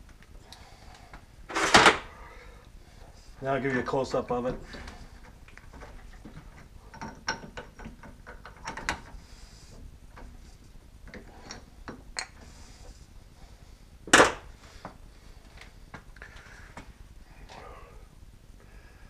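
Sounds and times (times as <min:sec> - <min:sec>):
metal clicks and knocks: 0:05.6 - 0:09.1.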